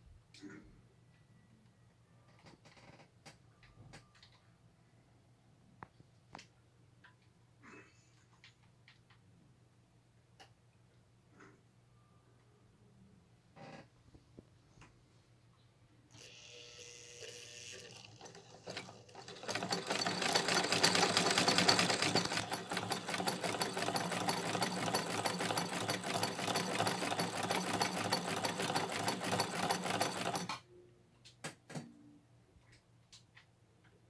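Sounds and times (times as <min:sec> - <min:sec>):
machine clicks: 0:17.7 - 0:30.6
sewing machine clattering: 0:17.8 - 0:30.6.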